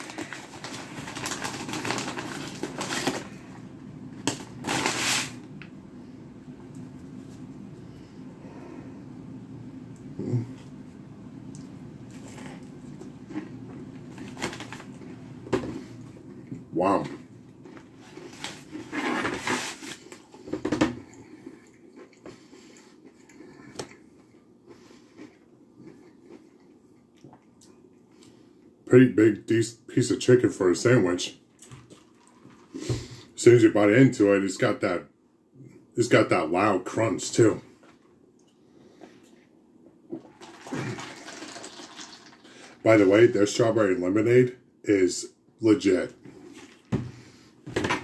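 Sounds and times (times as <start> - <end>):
paper wrapper crinkling: 0.0 - 3.4, 4.2 - 5.4, 14.2 - 15.0.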